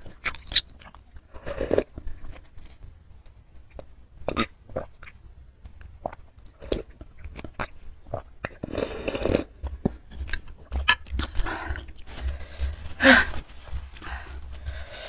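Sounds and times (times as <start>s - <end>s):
wet mouth clicks: 0.1s - 1.0s
slurping soup: 6.0s - 12.1s.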